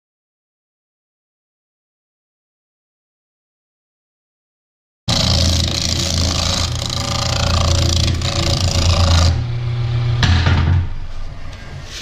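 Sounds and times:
lathe motor hum: 5.1 - 10.2.

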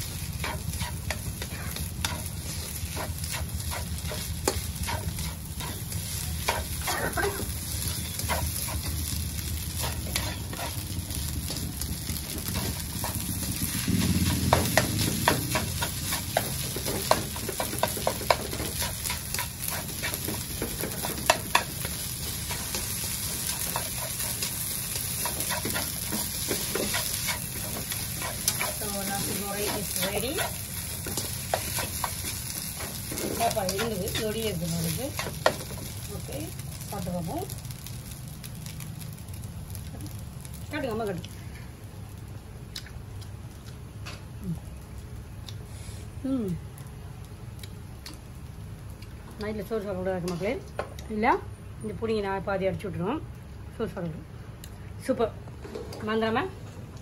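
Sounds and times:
rice sizzling in a wok: 0.0 - 54.3
spatula scraping and tapping pan: 0.3 - 6.9, 7.8 - 10.8, 14.2 - 35.9.

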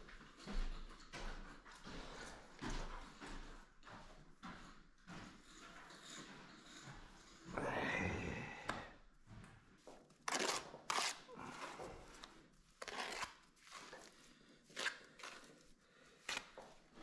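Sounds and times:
trowel scraping mortar: 10.3 - 11.8, 12.8 - 14.1, 14.7 - 15.5.

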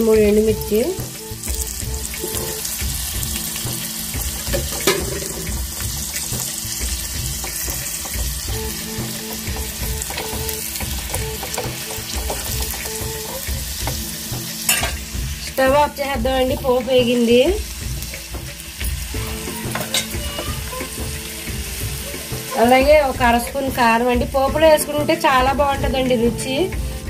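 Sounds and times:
oil sizzling in a pan: 0.0 - 27.0
oil popping: 0.6 - 15.6.

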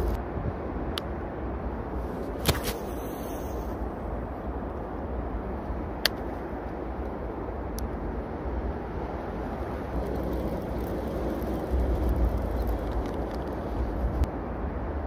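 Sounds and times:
traffic rumble: 0.0 - 15.0
wind noise: 0.0 - 15.0.

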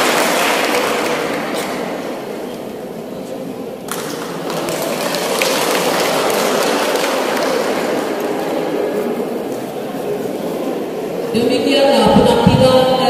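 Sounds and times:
audience applauding: 0.0 - 2.2, 3.9 - 9.7.

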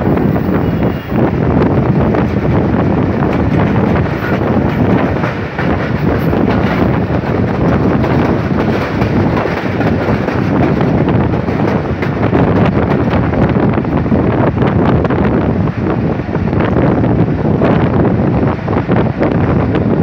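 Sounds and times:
train running on rails: 0.0 - 20.0
wind buffeting microphone: 0.0 - 20.0.

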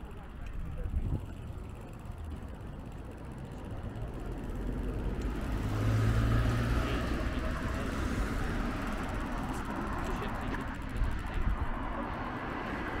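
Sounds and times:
car driving past: 4.8 - 9.2.

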